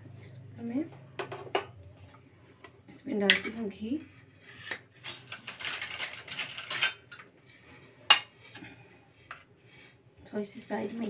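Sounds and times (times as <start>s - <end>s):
metal clattering and scraping: 4.2s - 8.6s.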